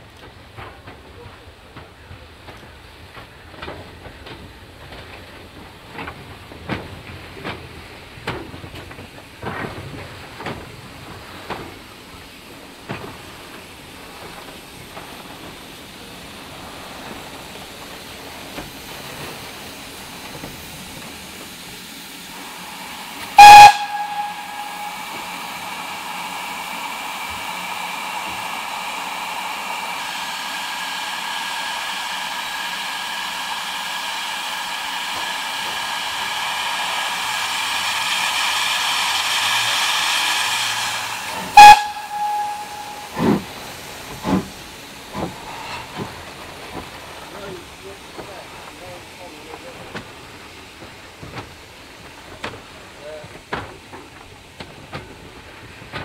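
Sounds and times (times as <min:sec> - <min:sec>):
steam hissing: 0:11.0 - 0:56.0
steam whistle blast: 0:22.5 - 0:26.4, 0:40.6 - 0:43.7.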